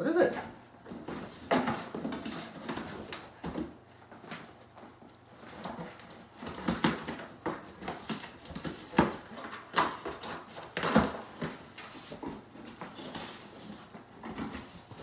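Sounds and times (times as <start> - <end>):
dog knocking cardboard box: 0.8 - 3.8, 5.6 - 13.3.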